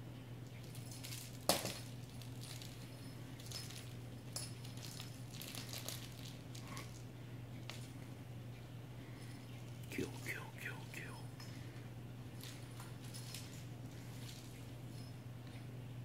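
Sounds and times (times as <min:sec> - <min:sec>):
cat batting toy clicks and scuffs: 0:00.5 - 0:08.2.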